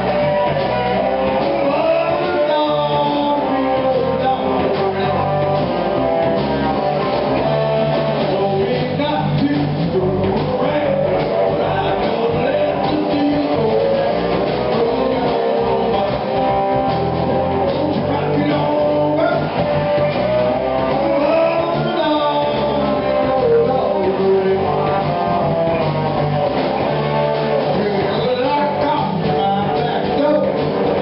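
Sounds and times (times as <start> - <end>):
drum kit: 0.0 - 31.0
electric slide guitars: 0.0 - 31.0
man singing into a microphone: 1.4 - 5.5, 7.8 - 16.7, 17.6 - 20.1, 20.8 - 25.1, 27.7 - 31.0.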